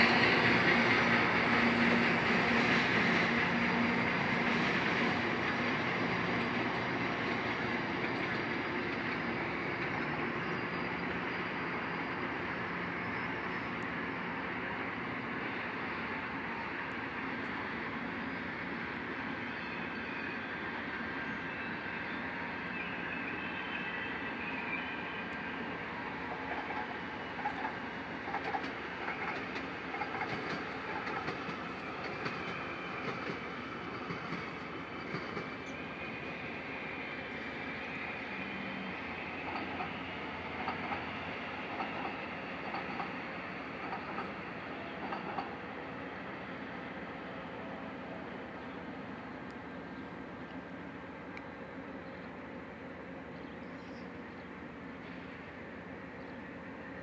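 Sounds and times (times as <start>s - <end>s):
diesel locomotive engine idling: 0.0s - 57.0s
train running rumble: 0.0s - 57.0s
wheels clicking over rail joints: 26.3s - 35.9s, 39.0s - 45.7s.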